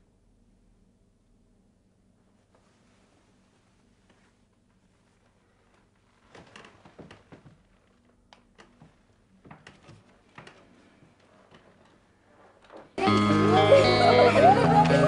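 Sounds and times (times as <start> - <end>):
faint room hum: 0.0 - 15.0
bedding rustling and brushing: 2.4 - 8.0.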